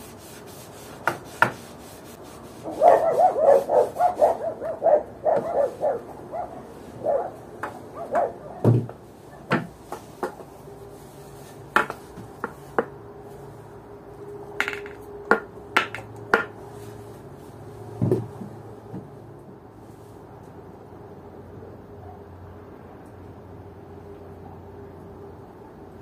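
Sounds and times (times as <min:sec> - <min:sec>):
hard objects clinking and knocking: 0:14.6 - 0:15.0.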